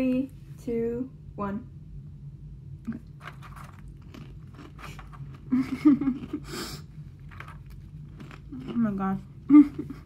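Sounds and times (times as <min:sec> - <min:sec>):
crackers crunching: 0:02.9 - 0:09.3.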